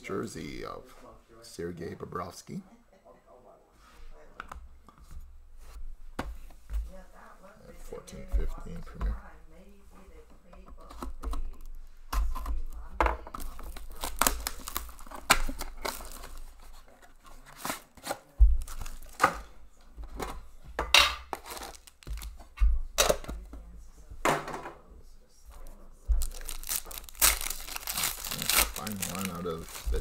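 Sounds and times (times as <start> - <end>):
plastic wrap crinkling: 12.4 - 19.4, 21.3 - 22.4, 26.1 - 30.0
plastic wrap ripping: 13.4 - 16.7, 21.4 - 22.3, 26.2 - 30.0.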